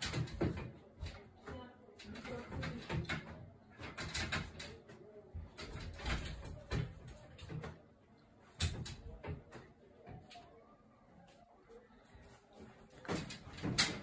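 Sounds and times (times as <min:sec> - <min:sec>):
drying rack rattling and knocking: 0:00.0 - 0:04.8, 0:13.0 - 0:14.0.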